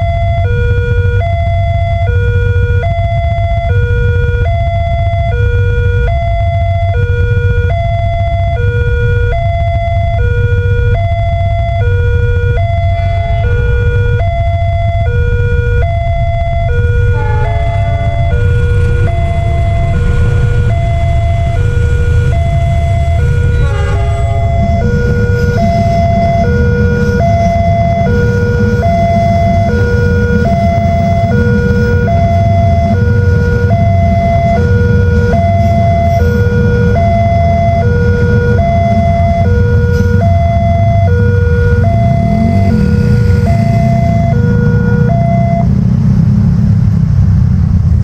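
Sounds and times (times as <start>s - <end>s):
level-crossing alarm two-tone: 0.0s - 45.8s
train rumbling past: 11.5s - 48.0s.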